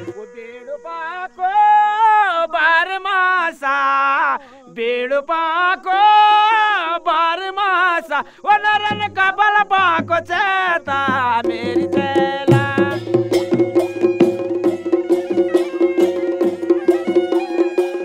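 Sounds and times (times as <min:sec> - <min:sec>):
man singing solo: 0:00.0 - 0:14.1.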